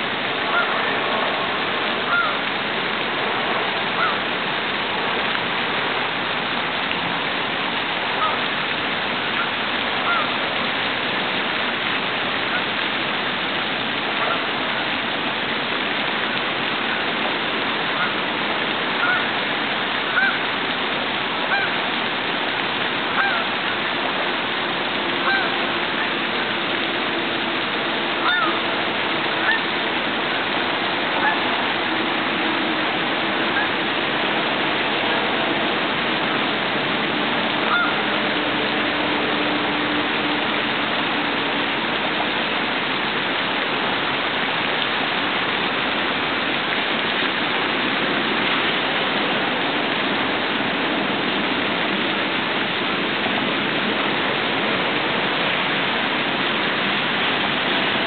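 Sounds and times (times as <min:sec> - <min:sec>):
fountain spray splashing: 0:00.0 - 0:58.0
geese honking: 0:00.5 - 0:00.7, 0:02.1 - 0:02.4, 0:09.4 - 0:10.3, 0:19.0 - 0:19.3, 0:20.1 - 0:20.4, 0:21.5 - 0:21.8, 0:23.2 - 0:23.5, 0:25.2 - 0:25.6, 0:28.2 - 0:28.6, 0:29.4 - 0:29.7, 0:31.2 - 0:31.4, 0:37.7 - 0:38.0.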